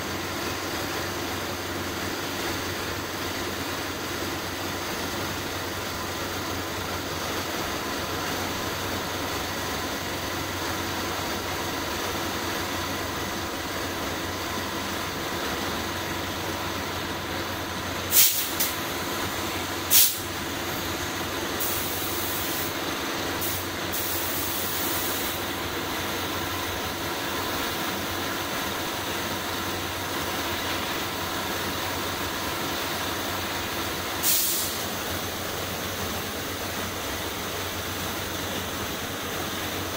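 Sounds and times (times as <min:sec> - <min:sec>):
paint spray gun hissing: 0:18.1 - 0:20.4, 0:21.6 - 0:22.8, 0:23.4 - 0:25.5, 0:32.8 - 0:38.2.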